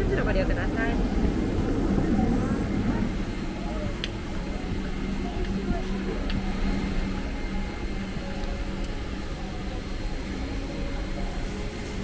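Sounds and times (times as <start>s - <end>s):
low steady hum: 0.0s - 12.0s
ventilation air rushing: 0.0s - 12.0s.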